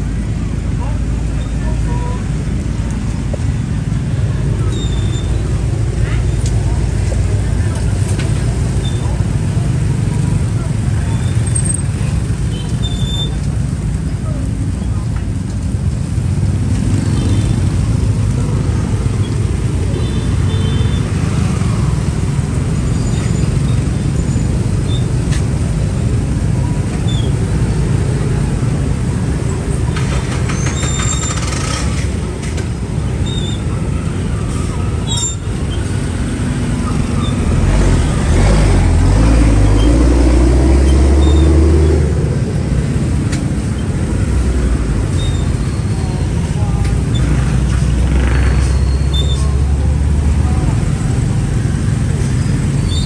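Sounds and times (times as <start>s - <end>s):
passing vehicles rumble: 0.0s - 53.0s
loud engine passing close: 35.8s - 52.8s.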